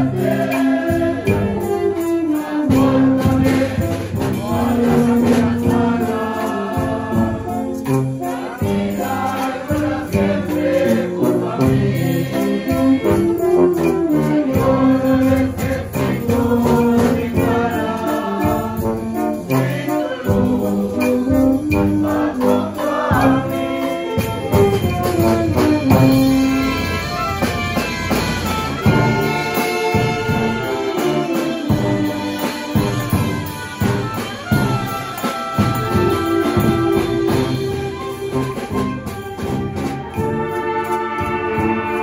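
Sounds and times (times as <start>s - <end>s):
brass band playing: 0.0s - 42.0s
snare and bass drum beats: 2.7s - 42.0s.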